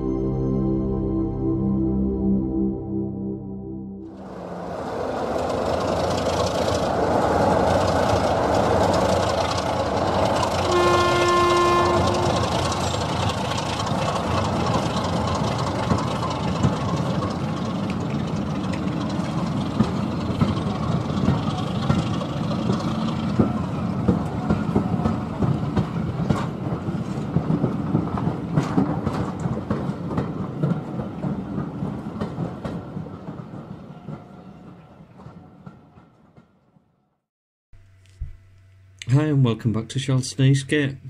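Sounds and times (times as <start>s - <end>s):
train rumbling past: 0.0s - 36.9s
wheels clicking over rail joints: 4.8s - 36.6s
train horn blast: 10.6s - 13.0s.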